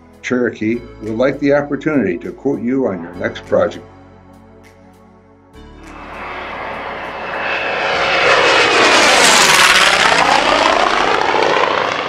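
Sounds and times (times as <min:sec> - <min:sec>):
propeller plane passing overhead: 0:05.8 - 0:12.0.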